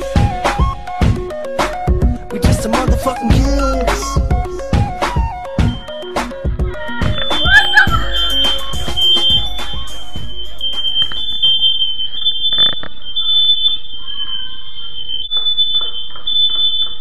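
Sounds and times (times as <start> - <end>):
music: 0.0 - 12.4
smoke alarm two-tone beeping: 7.1 - 17.0.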